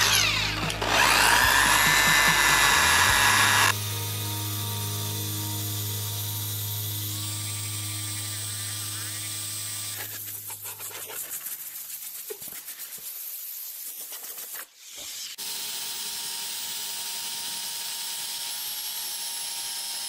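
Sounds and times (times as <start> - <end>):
eraser wheel rubbing on paint: 8.1 - 15.2.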